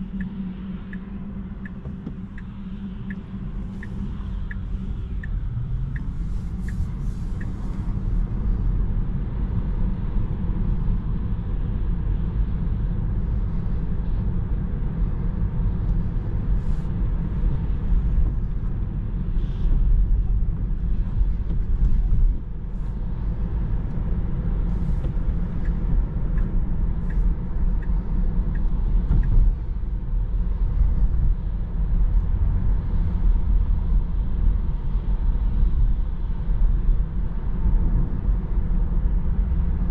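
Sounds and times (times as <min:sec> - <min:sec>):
road and tyre rumble: 0:00.0 - 0:39.9
light ticks: 0:00.2 - 0:07.9, 0:24.9 - 0:29.5.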